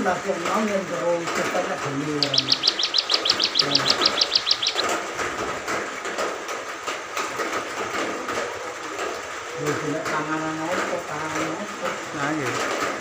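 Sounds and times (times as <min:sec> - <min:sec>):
people talking quietly: 0:00.0 - 0:05.0, 0:07.9 - 0:13.0
songbird trilling: 0:01.9 - 0:05.0.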